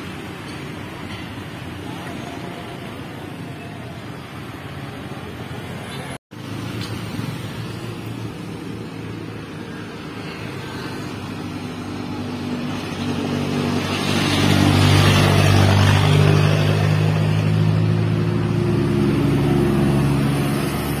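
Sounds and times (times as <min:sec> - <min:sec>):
truck diesel engine passing: 0:10.0 - 0:21.0.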